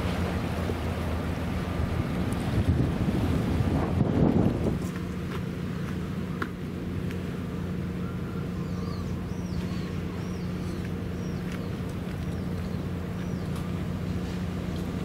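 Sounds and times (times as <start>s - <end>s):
low machine hum: 0.0s - 15.0s
bird chirping: 8.0s - 13.6s.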